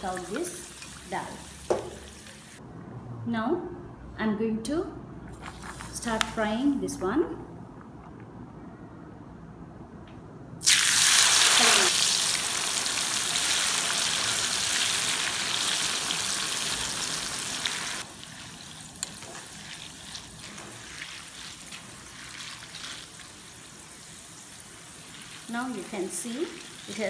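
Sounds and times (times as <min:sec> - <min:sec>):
loud sizzle of frying in oil: 0:00.0 - 0:02.6, 0:10.6 - 0:27.0.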